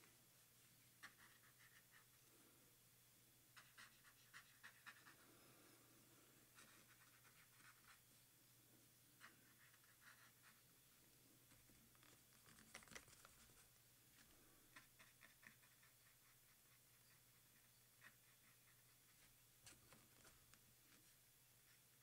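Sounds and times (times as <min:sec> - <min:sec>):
brush pen scratching on paper: 0:01.0 - 0:02.2, 0:03.5 - 0:05.3, 0:06.5 - 0:08.0, 0:09.2 - 0:10.7, 0:14.6 - 0:22.0.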